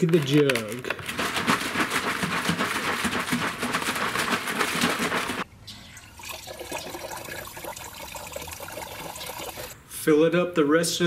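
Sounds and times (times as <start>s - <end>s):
water sloshing in plastic jug: 0.0s - 5.4s.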